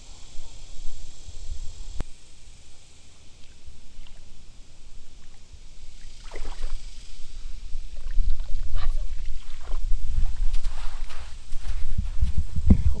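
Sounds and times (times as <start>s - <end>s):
creek water splashing: 2.2s - 11.4s.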